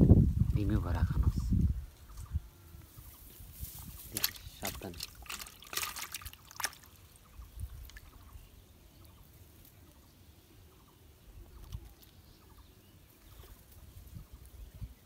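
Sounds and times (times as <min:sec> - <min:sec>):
wind rumble on microphone: 0:00.0 - 0:04.7, 0:13.8 - 0:15.0
fishing line handling sounds: 0:03.6 - 0:07.0.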